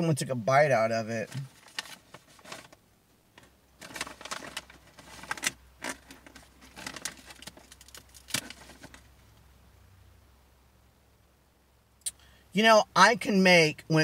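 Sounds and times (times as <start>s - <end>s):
cracker packaging crinkling: 3.8s - 9.1s.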